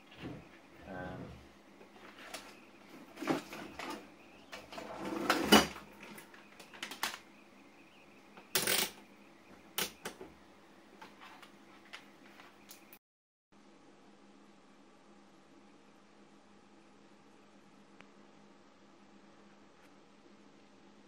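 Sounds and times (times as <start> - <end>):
tools clicking and clattering: 8.4 - 9.0.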